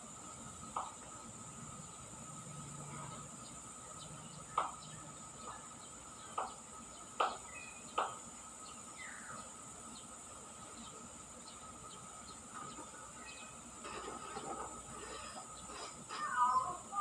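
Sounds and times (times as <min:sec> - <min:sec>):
high-pitched insect drone: 0:13.0 - 0:17.0
myna calling: 0:15.0 - 0:17.0.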